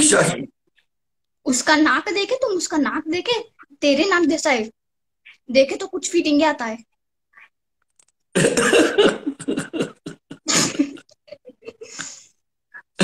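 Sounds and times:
man laughing hard: 8.4s - 11.0s.

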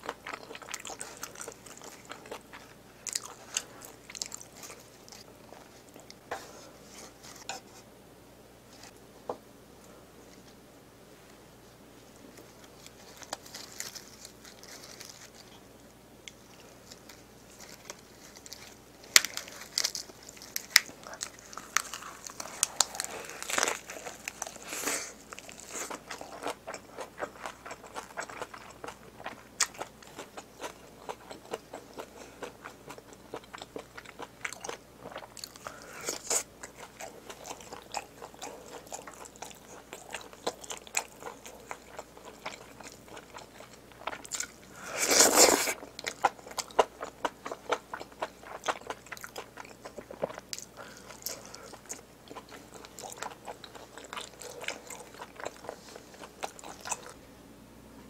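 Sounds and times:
close chewing and biting: 0.0s - 6.2s, 16.3s - 57.2s.

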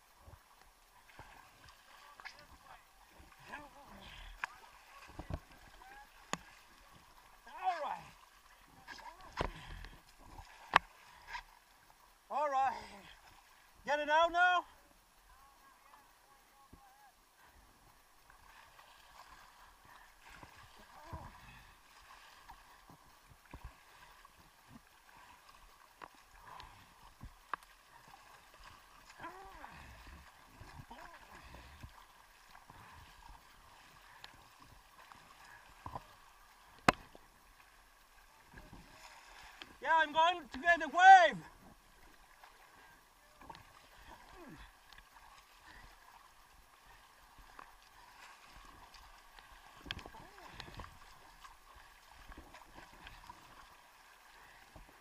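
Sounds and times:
faint lapping water: 0.0s - 55.0s
paddle splashes: 0.0s - 55.0s
small splashes and drips: 0.3s - 12.1s, 41.8s - 55.0s.

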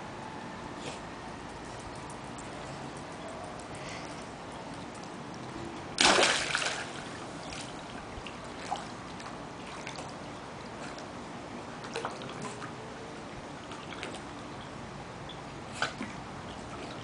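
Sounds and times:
water sloshing: 4.7s - 10.2s
dog splashing into pool: 6.0s - 7.8s.

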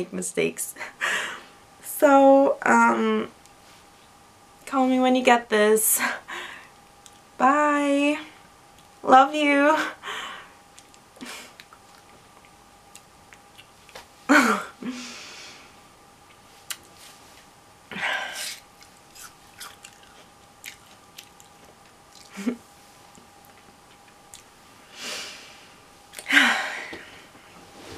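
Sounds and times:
lip and mouth clicks: 10.7s - 14.0s, 18.5s - 24.5s
woman stifled laughter: 22.3s - 22.6s.

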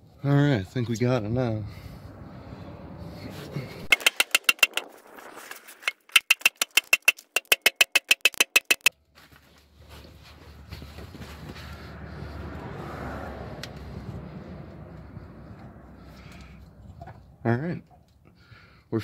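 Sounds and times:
hammer tapping on metal pan: 6.2s - 8.9s.

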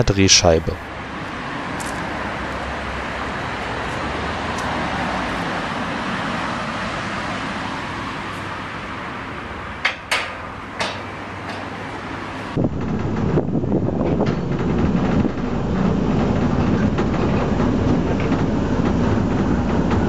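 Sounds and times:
steel track section turning: 0.0s - 20.0s
metallic knocks: 9.8s - 11.8s.

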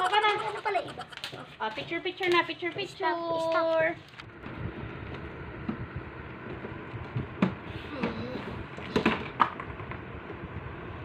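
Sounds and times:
child vocal sound: 7.8s - 8.6s.

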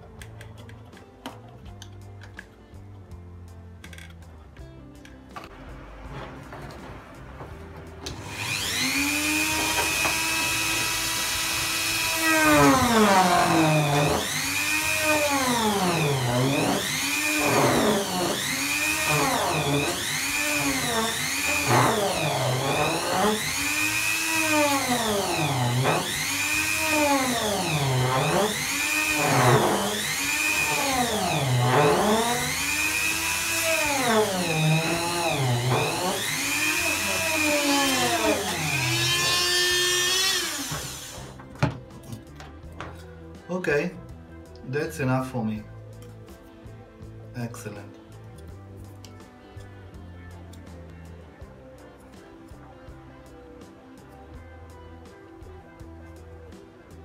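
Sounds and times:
rotary tool cutting plastic: 8.1s - 41.4s.

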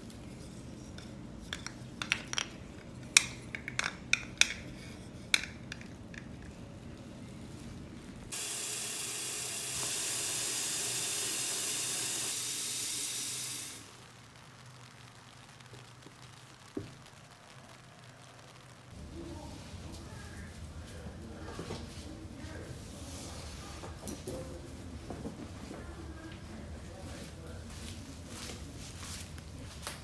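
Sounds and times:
tap water running into bucket: 8.3s - 13.9s.

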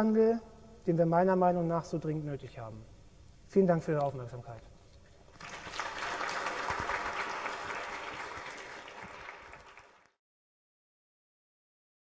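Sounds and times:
audience clapping: 5.3s - 10.2s.

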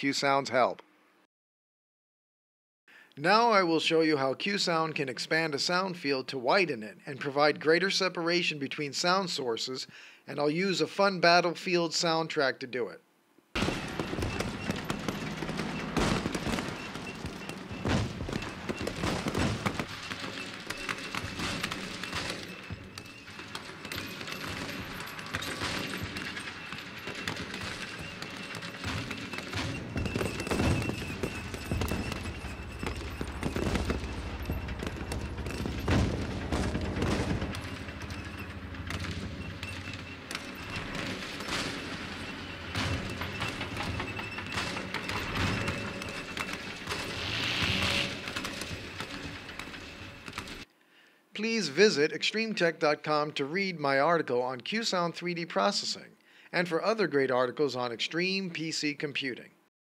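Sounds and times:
heavy blasts: 13.6s - 20.5s, 23.2s - 46.0s
gunfire and machine-gun fire: 13.6s - 50.6s.

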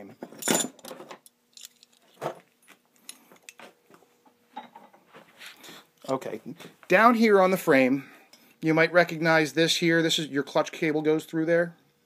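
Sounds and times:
metal clinks and clicks of handling: 0.4s - 3.6s.

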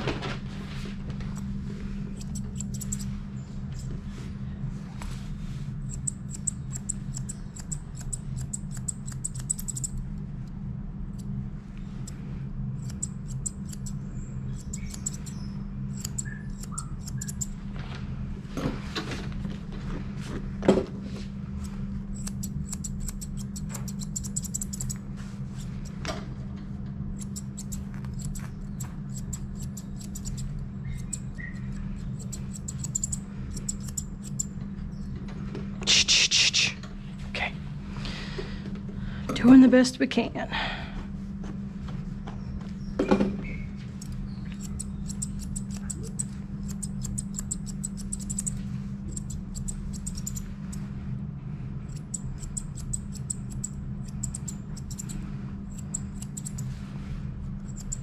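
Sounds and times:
steady low hum: 0.0s - 58.0s
shears snipping fur: 1.2s - 4.2s, 4.9s - 10.1s, 12.8s - 17.6s, 21.6s - 26.0s, 27.2s - 34.6s, 43.8s - 50.9s, 51.8s - 58.0s.

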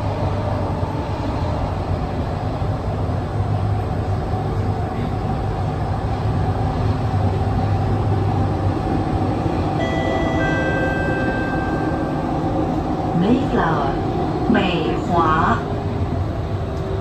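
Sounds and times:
train running rumble and hiss: 0.0s - 17.0s
high steady whining tones: 6.0s - 17.0s.

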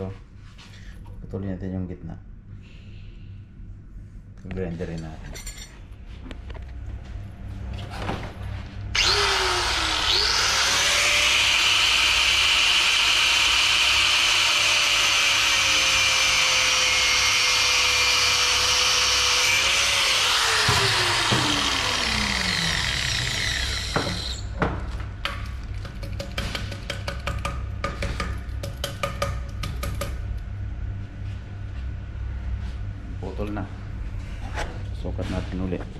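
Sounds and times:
electric grinder running: 9.0s - 24.5s.

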